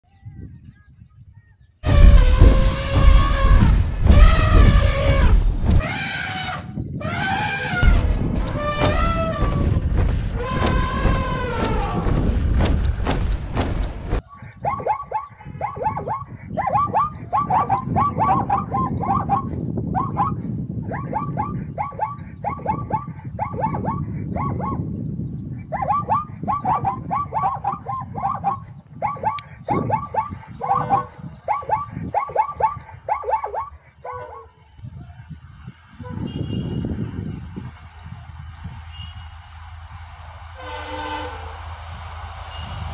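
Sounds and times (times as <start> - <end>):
low background rumble: 1.8 - 6.0, 7.0 - 14.2
zebra barking calls: 1.9 - 9.6, 10.4 - 12.1, 14.3 - 24.9, 25.6 - 34.6.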